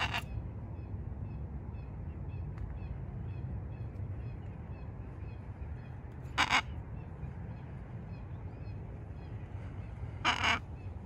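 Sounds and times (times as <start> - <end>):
macaw squawk: 0.0 - 0.4, 6.3 - 6.8, 10.2 - 10.7.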